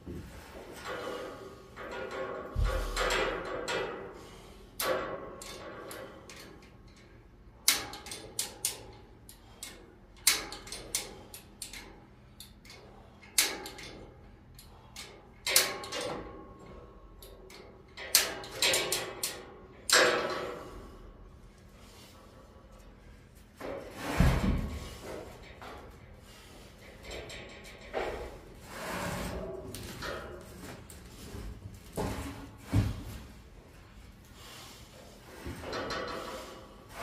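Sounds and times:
chain hoist clanking and rattling: 0.8 - 20.7, 24.6 - 31.3.

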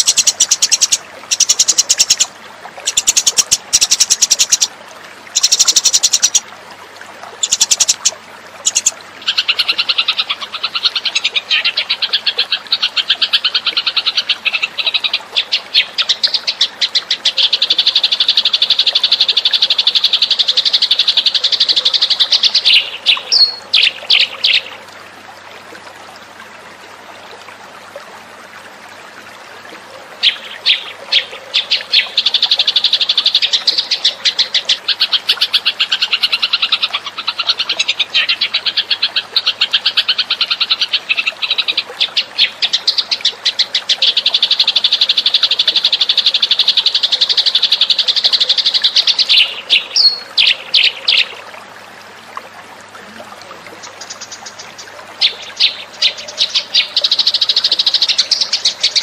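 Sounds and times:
sparrow chirping: 7.4 - 8.1.

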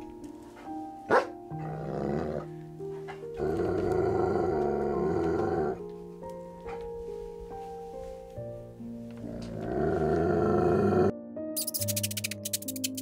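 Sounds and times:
background music: 0.0 - 13.0
dog growling: 1.5 - 5.8, 9.2 - 11.1.

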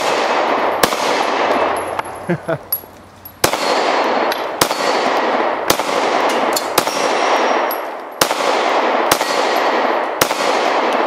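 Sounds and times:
pistol shots echoing: 0.0 - 2.2, 3.4 - 11.0.

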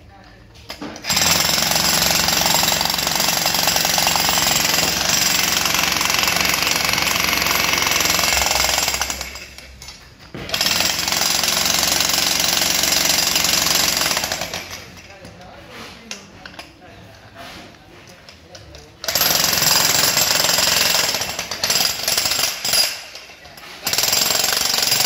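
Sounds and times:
demolition hammer chiselling concrete: 1.0 - 9.7, 10.4 - 15.1, 19.0 - 25.0.

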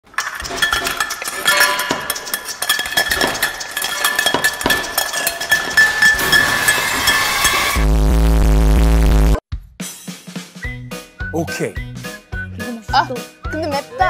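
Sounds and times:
dishes and cutlery clinking: 0.0 - 7.8.

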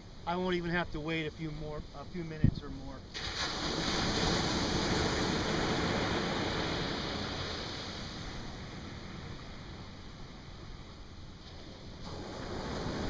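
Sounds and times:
surf wash hissing: 0.0 - 13.0
ocean wave breaking: 3.1 - 13.0.

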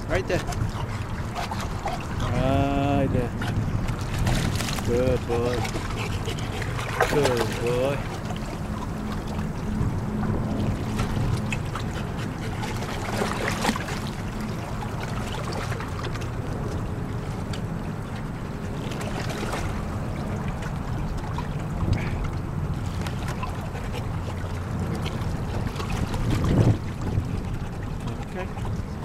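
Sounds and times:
wind on microphone: 0.0 - 13.8, 24.1 - 29.0
small waves lapping: 0.0 - 29.0
dog splashing in water: 4.1 - 7.9.

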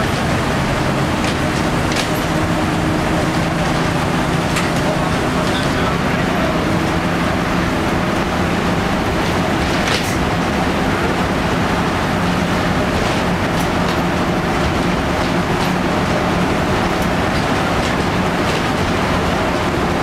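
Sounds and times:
diesel bus engine running: 0.0 - 20.0
road noise: 0.0 - 20.0
light rattles and clicks: 16.5 - 19.1.

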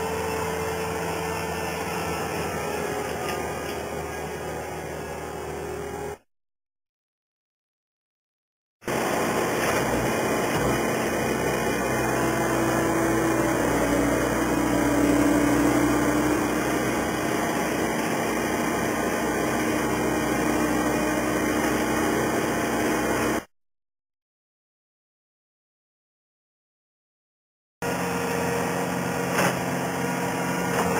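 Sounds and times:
machinery engine running: 0.0 - 6.2, 8.9 - 23.5.

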